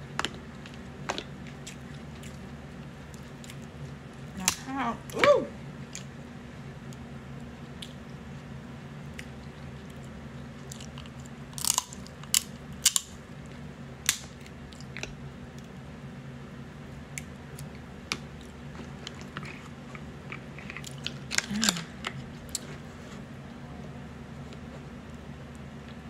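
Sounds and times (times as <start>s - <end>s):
steady low hum: 0.0s - 26.0s
close-up chewing: 0.3s - 4.3s, 9.1s - 12.5s, 17.5s - 23.2s
crab shells cracking: 10.6s - 13.2s.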